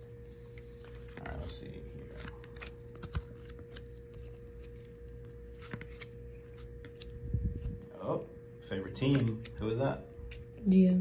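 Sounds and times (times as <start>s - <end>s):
trading cards flipped by hand: 0.5s - 7.2s.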